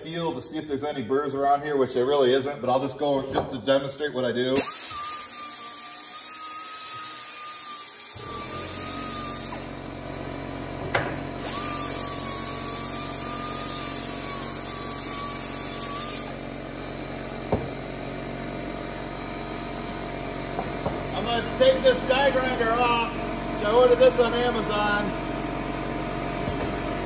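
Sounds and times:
air compressor humming: 4.5 - 27.0
air die grinder grinding metal: 4.6 - 9.8, 11.3 - 16.6.

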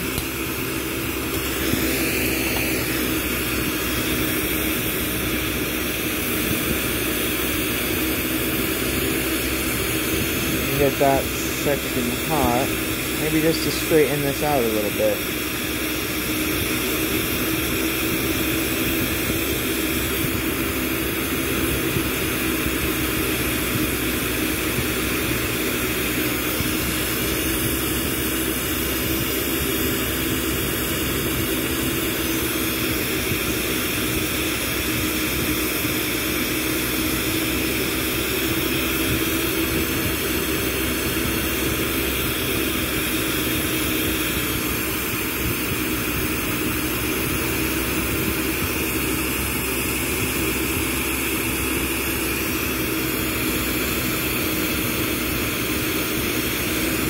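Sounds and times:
torch flame rushing: 0.0 - 36.0.

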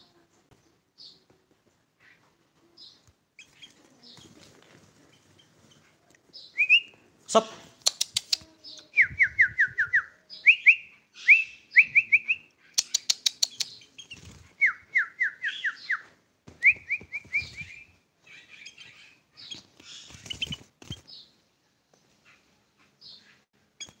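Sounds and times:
bird singing whistled notes: 6.4 - 7.0, 8.7 - 16.0, 16.6 - 17.9
sharp clicks: 7.8 - 8.5, 12.8 - 13.9.

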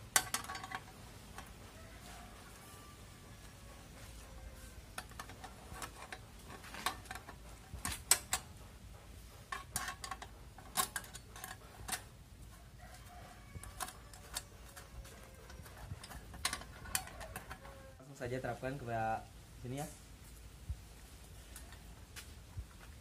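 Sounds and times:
spanner clicking on bolts: 4.9 - 8.5, 9.5 - 12.1.

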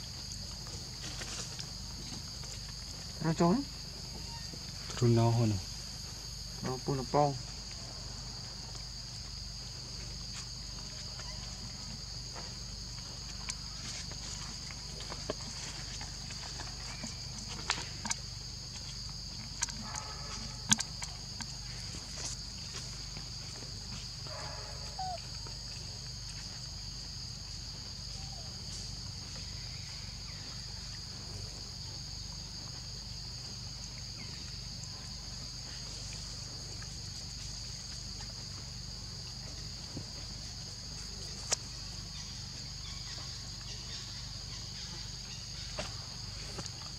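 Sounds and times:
insects chorus: 0.0 - 46.9
faint ticks: 19.4 - 22.4.

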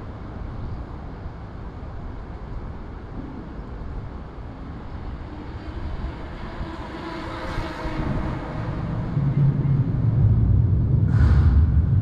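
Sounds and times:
low rumble of road traffic: 0.0 - 12.0
vehicle passing: 5.2 - 12.0.

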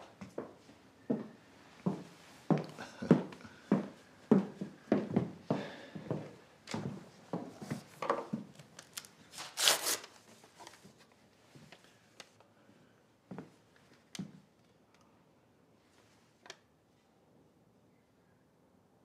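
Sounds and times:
paper rustling and crinkling: 8.6 - 11.2.

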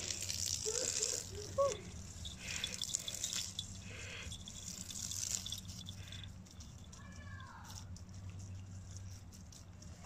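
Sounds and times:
hose spraying water: 0.0 - 6.3.

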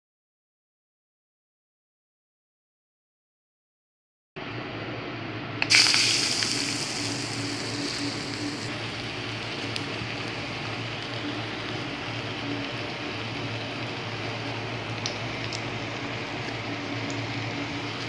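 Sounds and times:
food frying in hot oil: 5.6 - 18.0.

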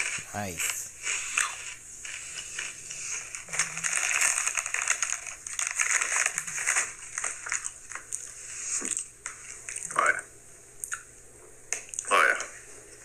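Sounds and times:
crinkly chip bag handled: 0.0 - 8.3
chips being crunched: 0.0 - 9.1.

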